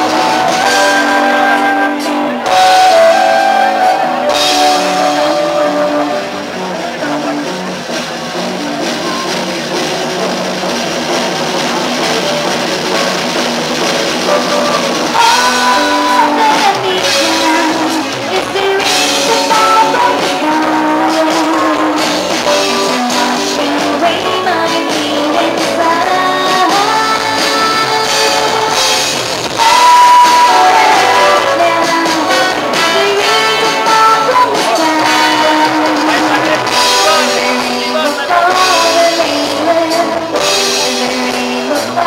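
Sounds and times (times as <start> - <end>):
flute playing tune: 0.0 - 7.2, 29.6 - 34.0
drum kit: 0.0 - 42.0
electric guitar: 0.0 - 42.0
held melody notes: 0.0 - 42.0.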